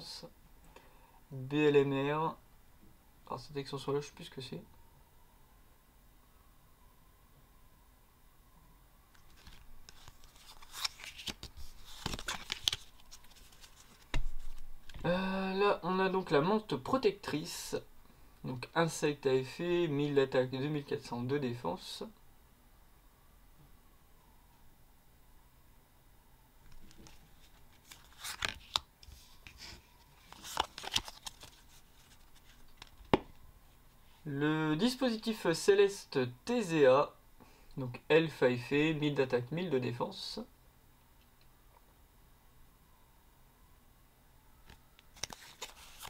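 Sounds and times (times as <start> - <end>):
trading cards rustling and scraping: 9.1 - 15.1, 26.7 - 33.3, 45.1 - 46.0.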